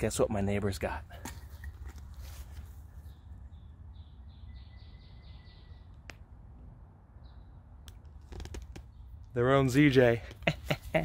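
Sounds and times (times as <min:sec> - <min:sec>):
small bird calling: 0:01.3 - 0:06.2.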